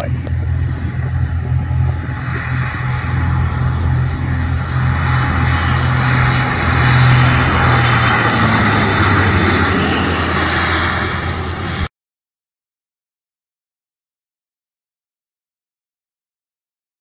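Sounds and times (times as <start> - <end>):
turboprop plane passing: 0.0 - 11.9.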